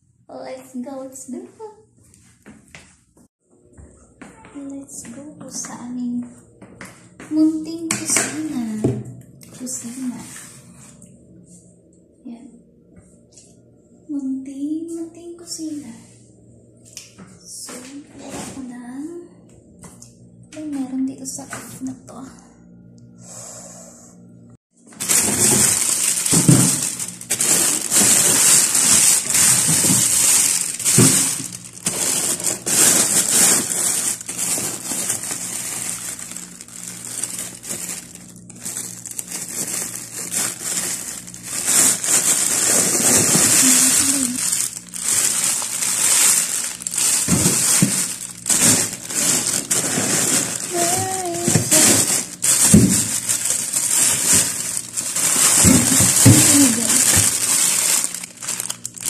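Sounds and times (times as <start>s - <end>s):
crunching handling noises: 24.8s - 59.0s
plastic bags crinkling: 24.8s - 59.0s.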